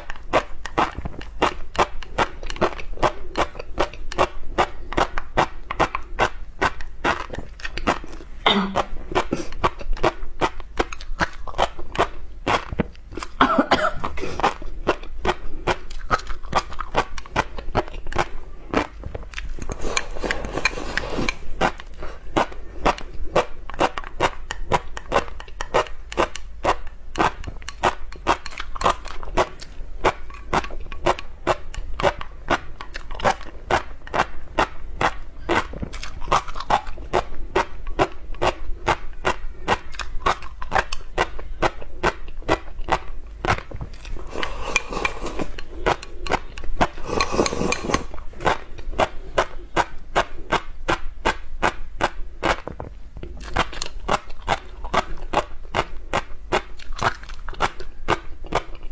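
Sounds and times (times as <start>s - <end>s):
crisp chewing: 0.0s - 13.4s, 14.0s - 58.9s
slurp from bowl: 19.7s - 22.0s, 44.1s - 49.2s.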